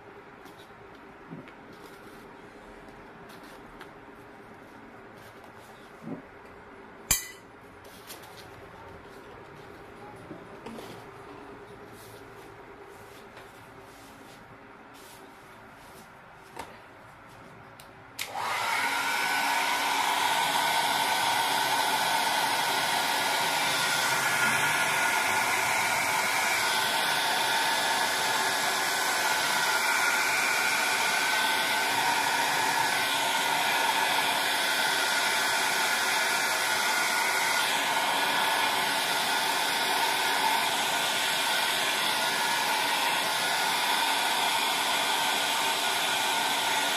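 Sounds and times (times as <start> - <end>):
hair dryer whining: 18.2 - 46.9.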